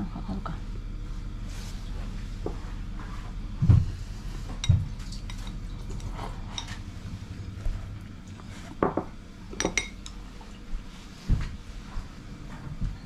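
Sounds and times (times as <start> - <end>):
dull thumps: 3.6 - 4.0.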